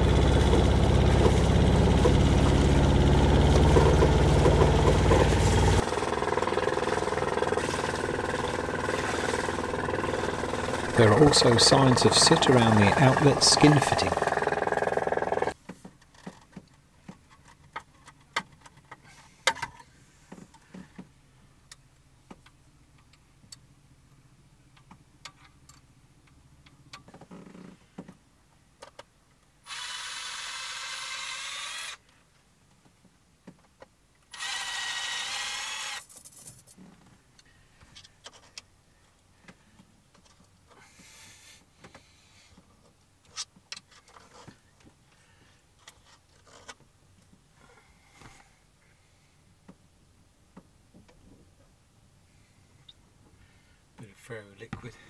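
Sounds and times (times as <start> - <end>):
cordless drill running: 0.0 - 15.6, 29.7 - 32.0, 34.3 - 36.1.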